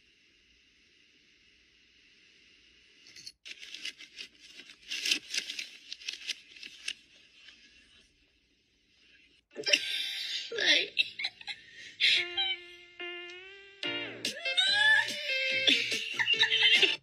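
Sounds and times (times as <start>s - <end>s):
paper bag crinkling: 3.5s - 7.2s.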